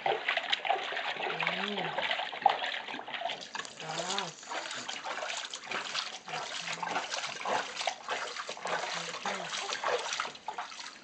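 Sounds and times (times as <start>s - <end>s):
water splashing and trickling: 0.0s - 11.0s.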